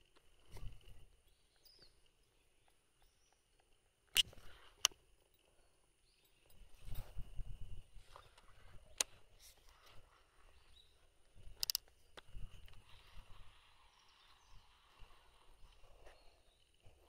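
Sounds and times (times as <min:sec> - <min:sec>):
fishing reel handling rumble: 0:11.4 - 0:13.3
fishing reel clicks: 0:11.5 - 0:11.9.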